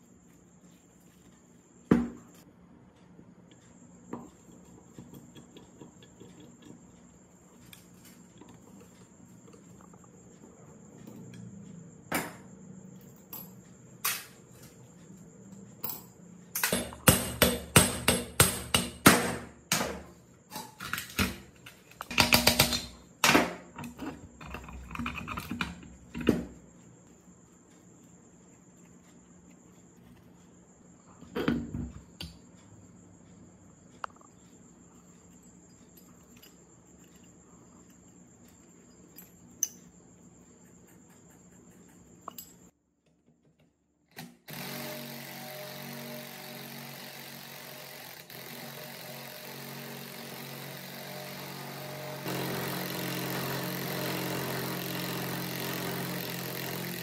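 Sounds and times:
metal parts knocking and tapping: 20.5 - 26.6.

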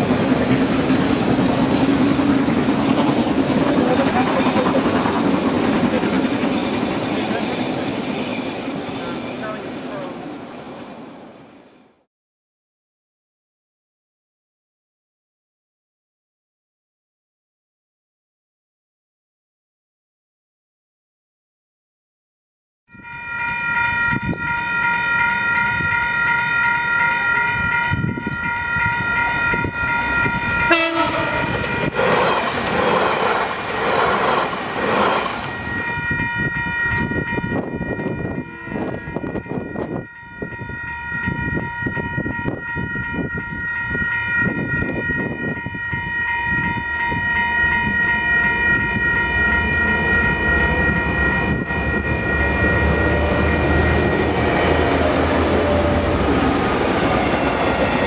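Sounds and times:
diesel locomotives rumbling: 0.0 - 12.0, 23.0 - 58.0
train horn chord: 30.2 - 32.0, 37.8 - 39.9.

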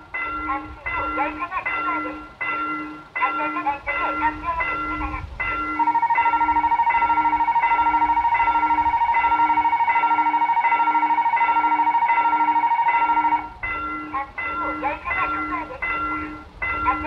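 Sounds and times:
bell-like crossing chime: 0.0 - 17.0
warbling electronic alarm tone: 5.7 - 14.1.

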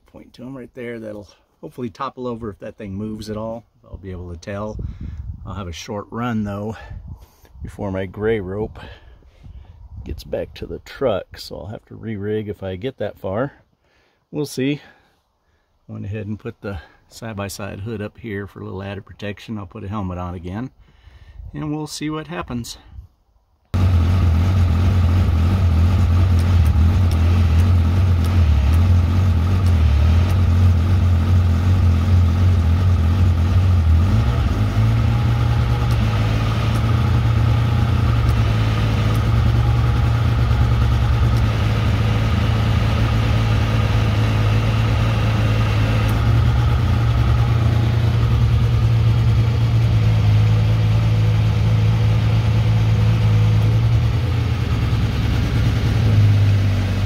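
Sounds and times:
vehicle engine running: 23.8 - 57.0.

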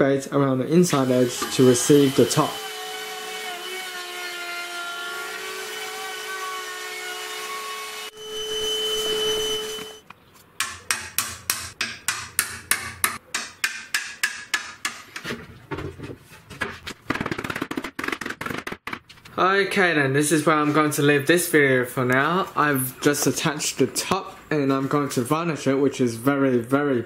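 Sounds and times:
router cutting wood: 0.9 - 10.0
chisel tapping wood: 10.6 - 15.3.

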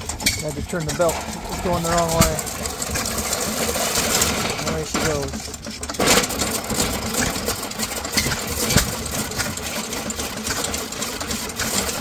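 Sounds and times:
pumpkin shredder clattering: 0.0 - 12.0
stationary engine running: 0.0 - 12.0.

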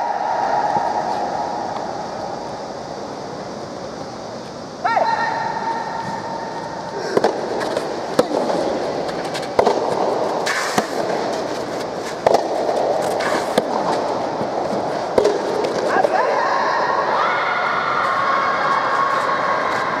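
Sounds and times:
steady background noise: 0.0 - 20.0
rackets striking tennis ball: 6.4 - 16.4.

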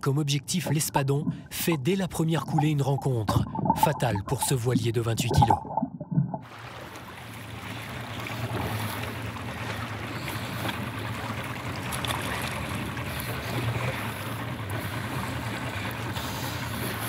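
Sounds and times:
water splashing against boat: 0.0 - 17.0.

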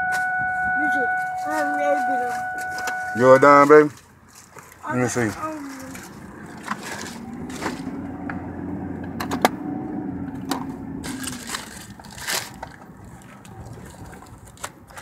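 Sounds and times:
steady low hum: 5.6 - 13.3
paper wrapper crinkling: 11.0 - 15.0.

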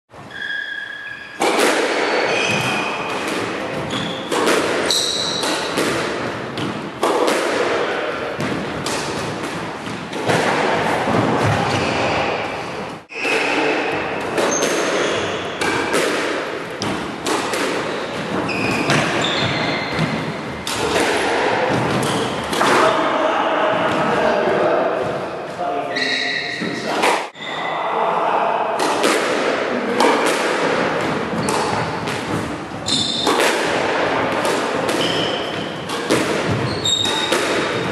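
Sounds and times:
squash ball hits echoing: 0.3 - 25.6, 28.5 - 37.9
shoes squeaking on wooden floor: 2.1 - 3.1, 3.7 - 5.8, 12.9 - 15.6, 17.8 - 21.0, 21.8 - 22.6, 25.8 - 27.6, 32.6 - 33.4, 34.9 - 37.9.

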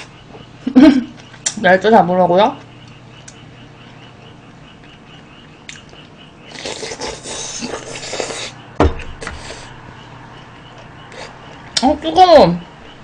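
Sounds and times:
slurping and chewing: 5.7 - 8.6.

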